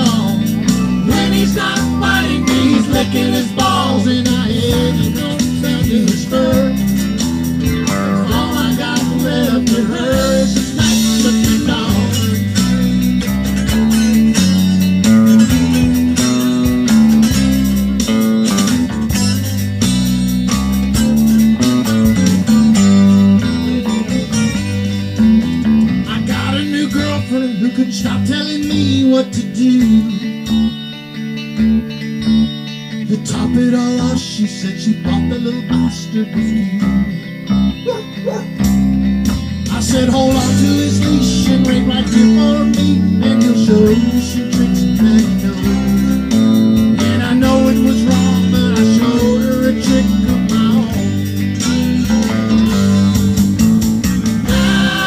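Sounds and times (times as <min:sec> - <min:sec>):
accordion: 0:00.0 - 0:09.2
bass guitar: 0:00.0 - 0:55.0
electric guitars: 0:00.0 - 0:55.0.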